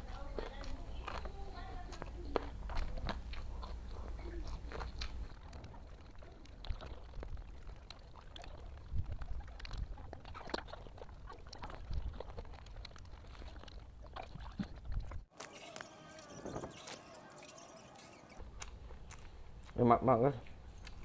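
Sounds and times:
man chewing food: 0:00.0 - 0:21.0
wet mouth clicks: 0:01.9 - 0:15.2.

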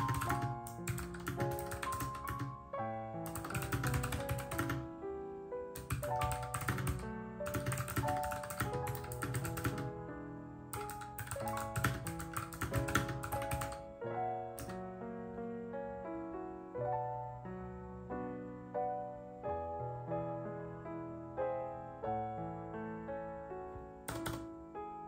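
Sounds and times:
fast typing on mechanical keyboard: 0:00.0 - 0:02.6, 0:03.3 - 0:04.9, 0:05.8 - 0:09.9, 0:10.8 - 0:13.8, 0:24.1 - 0:24.4
soft background piano music: 0:00.0 - 0:25.0.

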